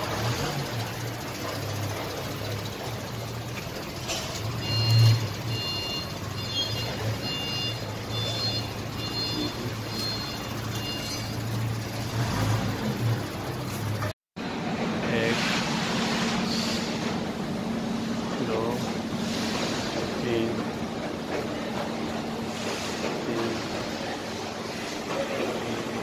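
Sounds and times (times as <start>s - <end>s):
short electronic beeps: 4.4s - 12.5s.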